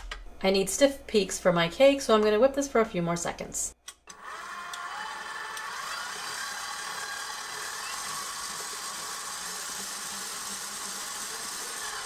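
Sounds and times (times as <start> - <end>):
stand mixer motor whine: 4.1 - 12.0
wire whisk beating cream: 5.5 - 12.0.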